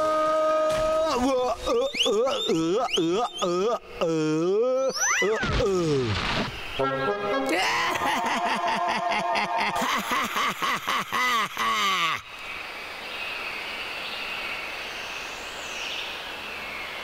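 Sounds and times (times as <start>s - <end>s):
cartoon man laughing: 1.0s - 5.6s, 6.9s - 12.3s.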